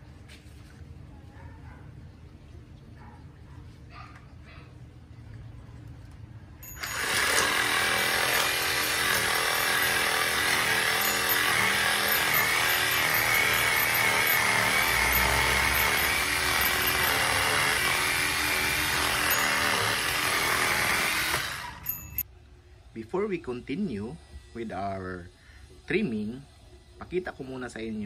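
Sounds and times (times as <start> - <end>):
reciprocating saw cutting branches: 6.7 - 22.2.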